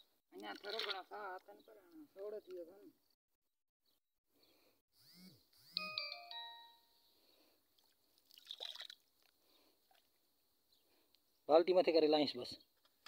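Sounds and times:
soft water splash: 0:00.4 - 0:01.1, 0:07.8 - 0:09.1
descending chime notes: 0:05.8 - 0:07.0.

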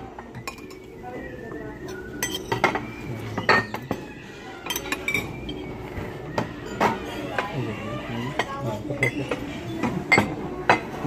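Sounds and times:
ceramic dishes clinking: 0:00.1 - 0:01.0, 0:01.8 - 0:05.7, 0:08.3 - 0:11.0.

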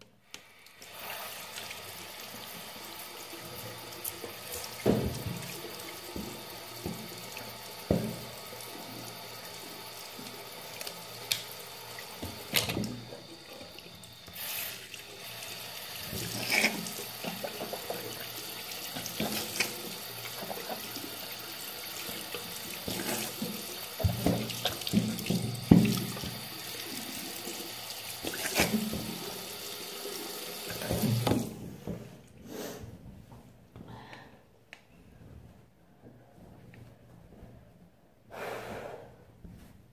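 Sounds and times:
bathroom tap running: 0:00.3 - 0:32.1.

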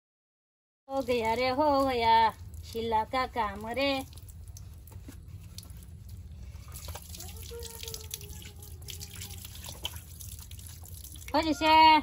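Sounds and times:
hands rinsing: 0:00.9 - 0:11.6
tap water splashing into basin: 0:06.7 - 0:11.5.

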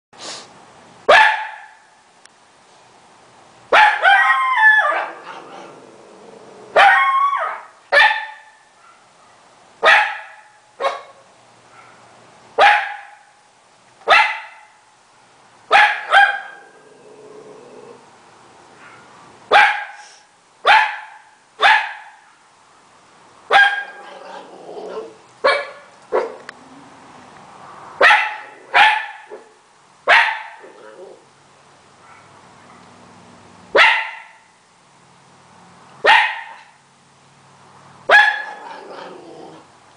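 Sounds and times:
dog barking: 0:01.1 - 0:01.8, 0:03.7 - 0:05.6, 0:06.8 - 0:13.3, 0:14.1 - 0:14.8, 0:15.7 - 0:16.7, 0:18.8 - 0:22.4, 0:23.5 - 0:24.1, 0:25.4 - 0:26.4, 0:28.0 - 0:30.6, 0:32.0 - 0:32.9, 0:33.8 - 0:34.4, 0:36.0 - 0:36.7, 0:38.1 - 0:38.8
long wavering dog bark: 0:01.1 - 0:01.9, 0:03.7 - 0:05.4, 0:06.7 - 0:13.3, 0:14.1 - 0:14.8, 0:15.7 - 0:16.8, 0:18.8 - 0:22.4, 0:23.5 - 0:24.0, 0:25.4 - 0:26.4, 0:28.0 - 0:30.6, 0:32.0 - 0:32.8, 0:33.8 - 0:34.5, 0:36.0 - 0:36.7, 0:38.1 - 0:38.6.

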